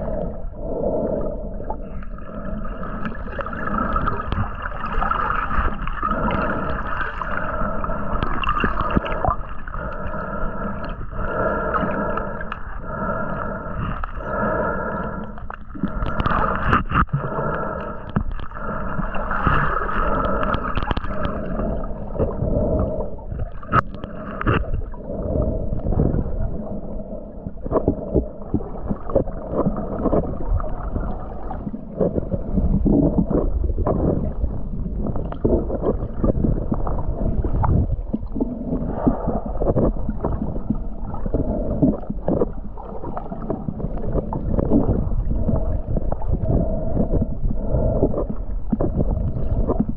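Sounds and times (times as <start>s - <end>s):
steady hum: 0.0s - 33.3s
muffled water swishing and gurgling: 0.0s - 49.9s
underwater knocks and clicks: 2.8s - 7.3s, 7.9s - 10.0s, 15.4s - 26.6s, 27.4s - 49.9s.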